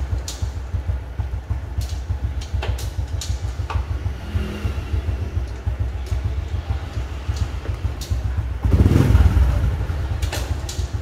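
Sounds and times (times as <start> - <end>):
motorcycle engine idling: 0.0 - 11.0
sharp clicks: 1.8 - 3.8.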